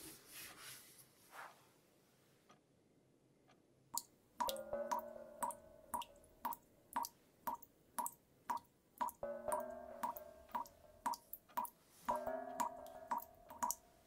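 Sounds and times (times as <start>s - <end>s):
water drips pinging: 4.0s - 14.0s.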